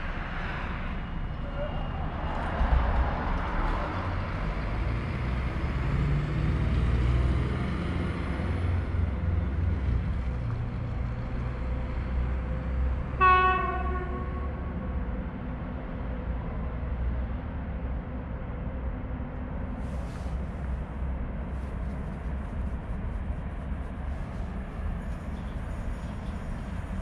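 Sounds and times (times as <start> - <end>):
train rumbling: 0.0 - 27.0
train horn blast: 13.2 - 14.8.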